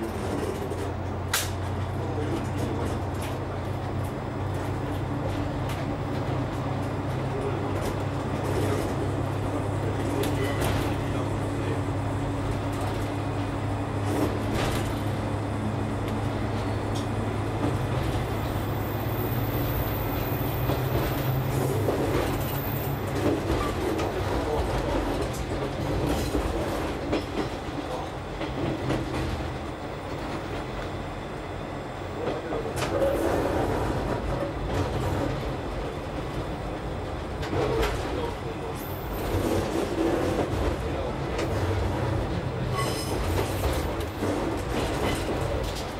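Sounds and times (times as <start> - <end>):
diesel engine drone: 0.0 - 23.3
train wheels rumbling: 0.0 - 45.9
wheels clacking over rail joints: 37.4 - 45.9.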